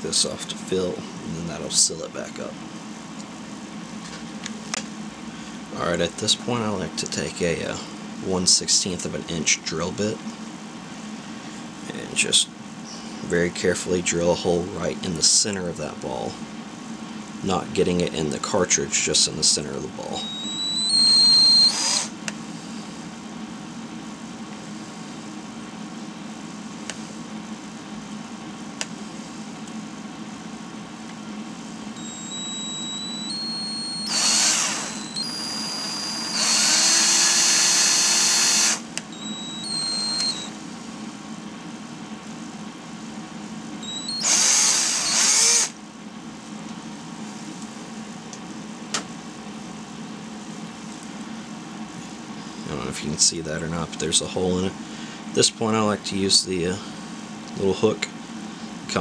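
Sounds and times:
power drill motor whining: 0:20.2 - 0:22.1, 0:32.0 - 0:40.5, 0:43.8 - 0:45.8.

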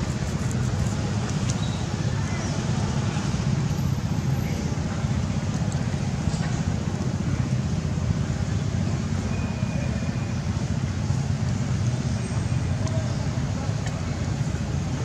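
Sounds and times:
low rumbling background noise: 0:00.0 - 0:15.0
faint thin whistle-like tone: 0:09.3 - 0:10.3.

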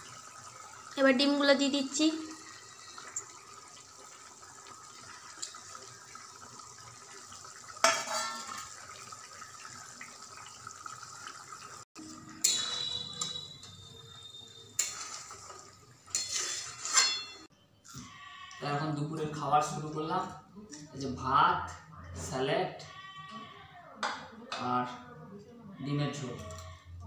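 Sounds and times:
curry bubbling in metal pan: 0:00.0 - 0:17.5
metal spoon clanking on pan: 0:07.8 - 0:08.8, 0:12.3 - 0:13.8, 0:14.8 - 0:17.5.

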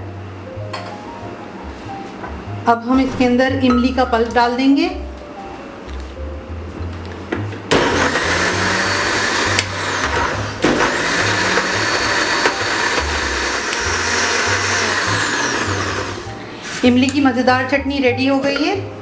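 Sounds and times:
soft background music: 0:00.0 - 0:19.0
electric blender grinding: 0:07.7 - 0:16.9.

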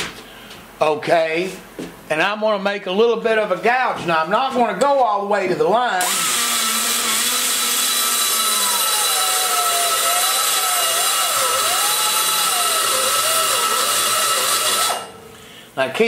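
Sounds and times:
die grinder whining: 0:06.0 - 0:15.2.

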